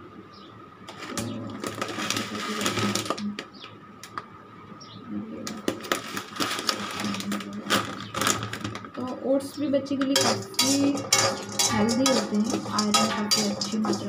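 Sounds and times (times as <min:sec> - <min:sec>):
plastic pouch crinkling: 0:00.9 - 0:03.4, 0:05.7 - 0:09.0.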